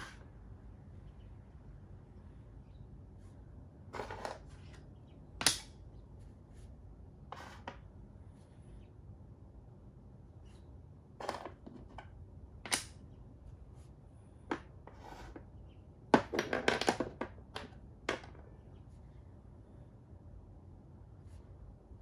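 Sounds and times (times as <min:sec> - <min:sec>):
chess pieces clicking on board: 0:12.7 - 0:13.0.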